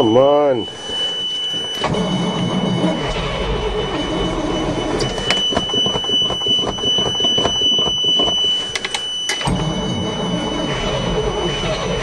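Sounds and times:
steady high-pitched tone: 0.0s - 12.0s.

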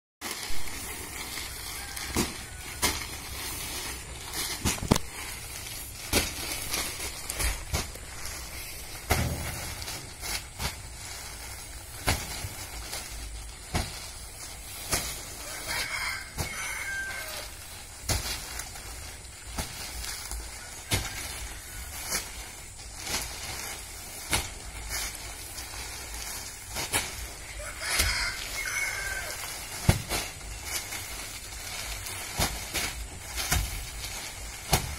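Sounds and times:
heavy sacks thumping down: 0.2s - 34.9s
rooster crowing: 1.2s - 3.3s, 15.4s - 17.6s, 27.4s - 29.6s.

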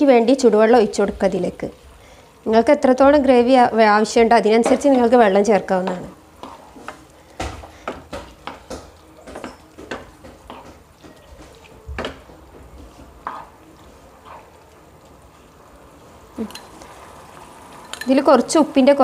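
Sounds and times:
spatula scraping frying pan: 5.8s - 8.6s, 12.8s - 14.7s.

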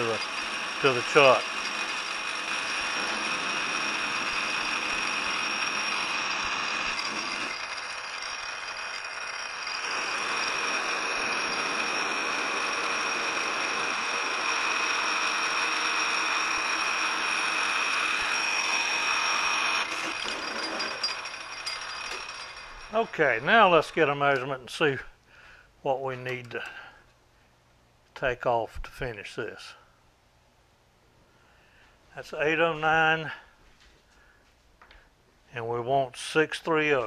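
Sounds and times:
metal lathe cutting hiss: 0.0s - 1.6s
lathe high whine: 0.0s - 24.4s.

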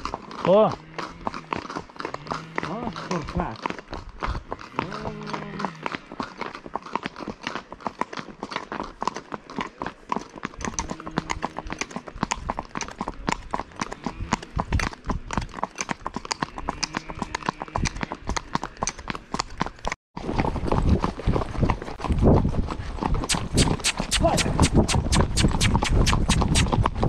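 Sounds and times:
horse hooves on asphalt: 0.0s - 27.0s.

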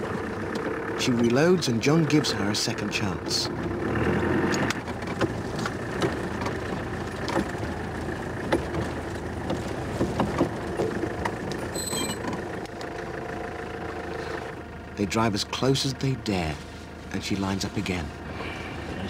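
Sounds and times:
vehicle engine running: 0.0s - 19.0s
knocks and rattles in cab: 4.6s - 12.7s
short high squeak: 11.7s - 12.3s.

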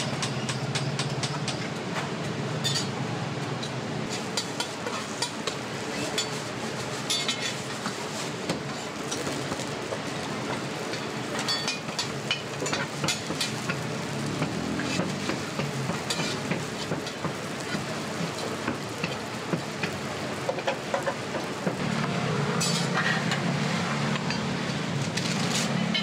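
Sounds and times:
pancakes sizzling in a pan: 11.8s - 21.1s
metal spatula scraping pan: 16.0s - 16.9s.

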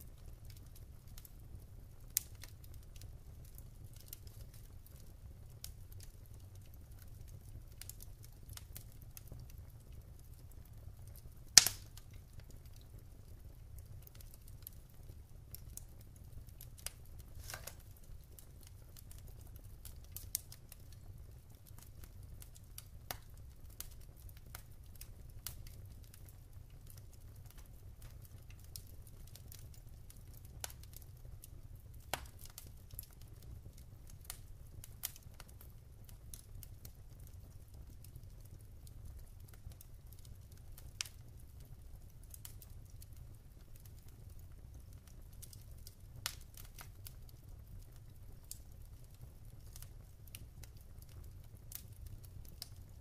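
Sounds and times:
fire low rumble: 0.0s - 53.0s
logs crackling in fireplace: 0.0s - 53.0s
sharp fire pops: 11.5s - 12.2s, 16.8s - 18.0s, 32.1s - 33.0s.

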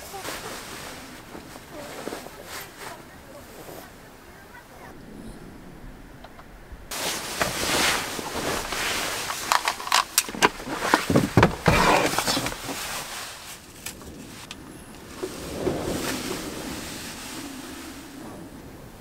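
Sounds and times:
bedding rustling: 0.0s - 5.0s, 6.8s - 19.0s
soft knocks and thumps: 7.1s - 13.1s.

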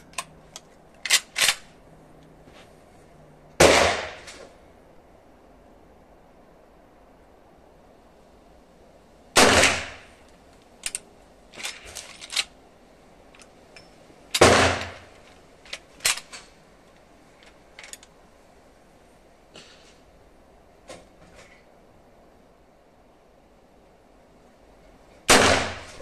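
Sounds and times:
rifle lever action clicks: 0.0s - 1.7s, 10.8s - 12.5s
rifle gunshots: 3.6s - 4.3s, 9.4s - 10.1s, 14.4s - 15.2s, 25.3s - 26.0s.

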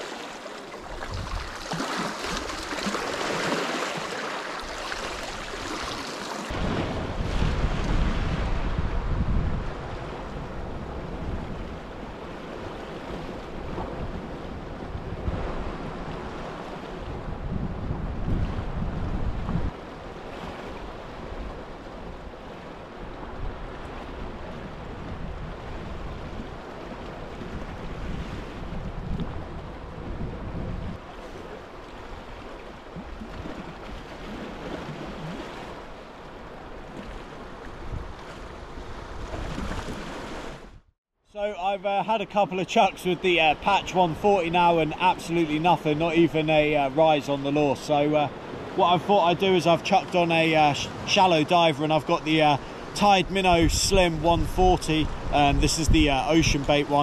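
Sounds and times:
sea waves against rocks: 0.0s - 40.8s, 41.6s - 57.0s
wind on microphone: 0.8s - 1.6s, 6.5s - 40.9s, 52.5s - 57.0s.

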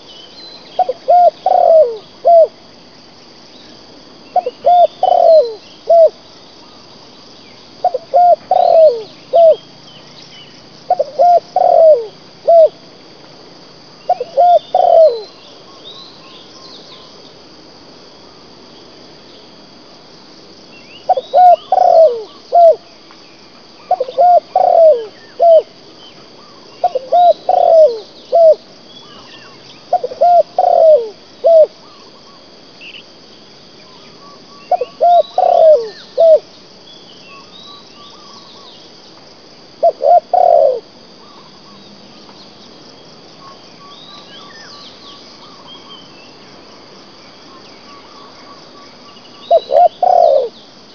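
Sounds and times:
high insect drone: 0.0s - 50.9s
dove cooing: 0.8s - 2.6s, 4.3s - 6.2s, 7.8s - 9.6s, 10.9s - 12.8s, 14.1s - 15.3s, 21.1s - 22.8s, 23.9s - 25.8s, 26.4s - 32.4s, 34.2s - 36.5s, 39.8s - 41.8s, 49.5s - 50.6s
small birds chirping: 20.8s - 33.0s, 33.8s - 39.2s, 47.5s - 50.7s.

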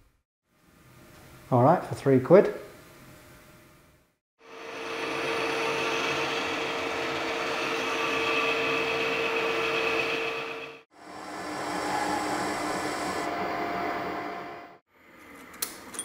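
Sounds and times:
metal lathe whining: 4.4s - 14.8s.

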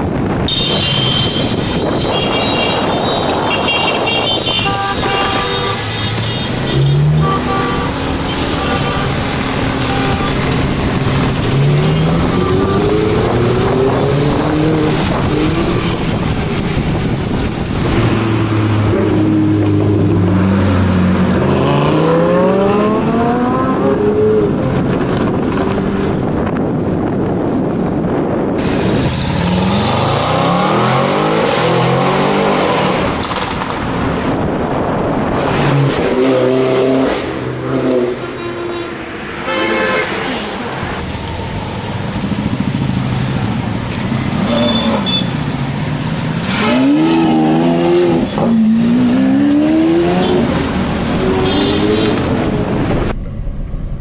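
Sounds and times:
sports car engines accelerating: 10.6s - 27.0s.

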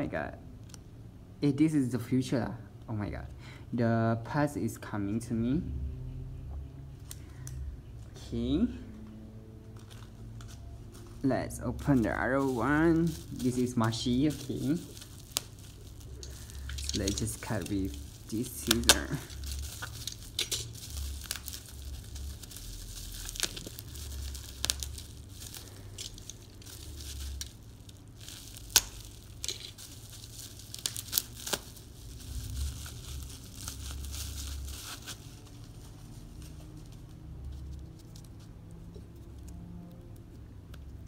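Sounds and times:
packaging torn and crinkled: 9.7s - 41.0s
scissors snipping packaging: 11.8s - 27.5s.

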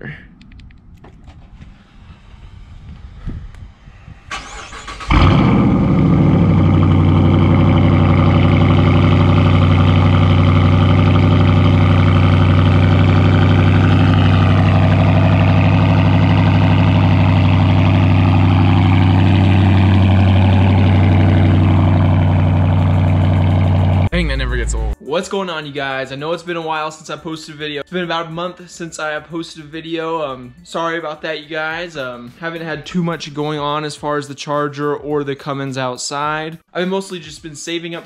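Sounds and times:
car engine revving and idling: 0.4s - 25.0s
starter motor cranking: 4.3s - 6.0s.

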